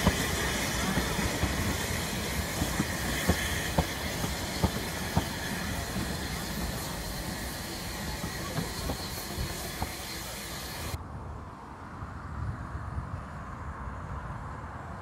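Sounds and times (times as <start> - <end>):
railway carriages rolling past: 0.0 - 11.6.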